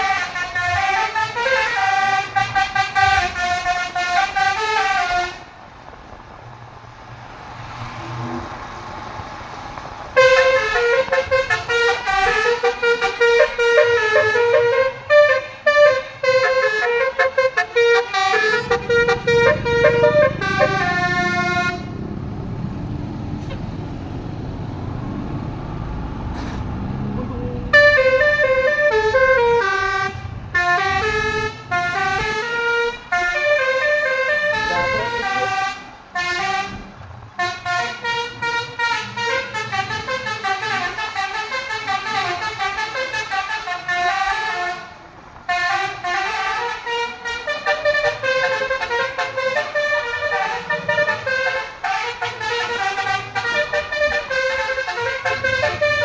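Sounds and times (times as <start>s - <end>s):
horn playing a tune: 0.0s - 5.4s, 10.2s - 21.9s, 27.3s - 36.8s, 37.4s - 44.9s, 45.5s - 56.0s.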